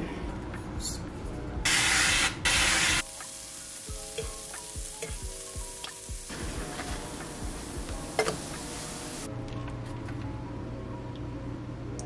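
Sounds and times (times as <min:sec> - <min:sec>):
soft background music: 0:00.0 - 0:12.0
aerosol cooking spray hissing: 0:01.7 - 0:09.3
faint sizzle of frying: 0:01.7 - 0:09.3.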